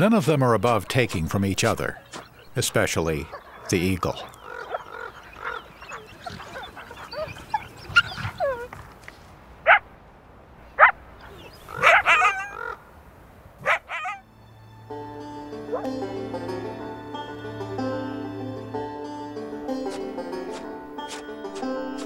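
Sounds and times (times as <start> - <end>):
coyotes whining and yipping: 3.2 - 9.0, 9.6 - 9.8, 10.7 - 12.8, 13.6 - 14.2
coyote yelps: 3.3 - 8.8, 9.6 - 9.8, 10.7 - 12.8, 13.6 - 14.2.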